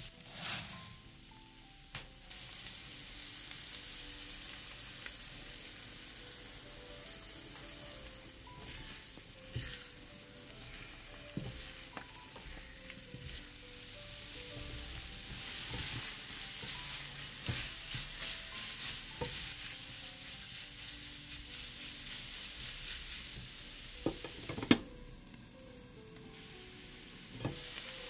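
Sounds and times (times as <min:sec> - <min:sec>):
food sizzling in hot oil: 0:00.0 - 0:28.0
utensil knocking pan: 0:24.0 - 0:24.9.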